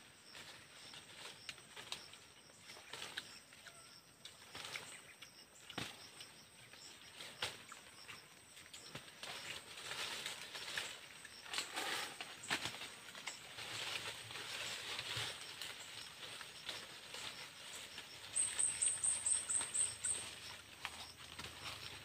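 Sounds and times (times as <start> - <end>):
dry leaves rustling: 8.6 - 22.0
small clicks and crackles: 8.7 - 18.7.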